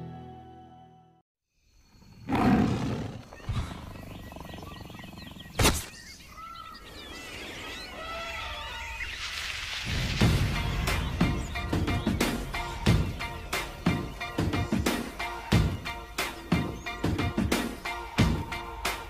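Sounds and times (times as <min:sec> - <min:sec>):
warbling chirping animal calls: 0:02.1 - 0:09.7.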